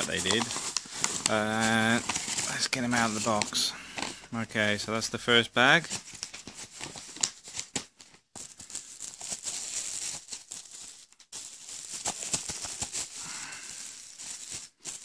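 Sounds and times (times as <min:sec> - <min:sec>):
bubble wrap crinkling: 0:00.0 - 0:04.2, 0:05.9 - 0:15.0.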